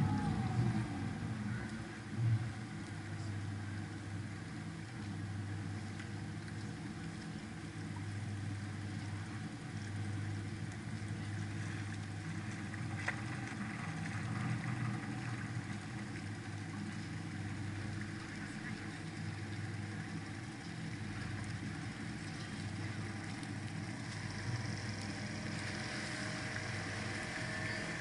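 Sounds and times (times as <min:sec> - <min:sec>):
boat engine humming: 0:00.0 - 0:28.0.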